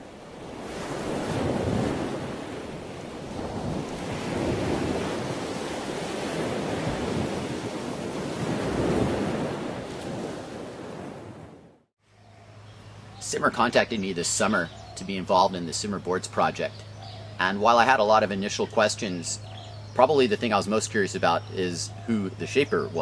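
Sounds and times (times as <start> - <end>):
waves breaking: 0.0 - 11.8.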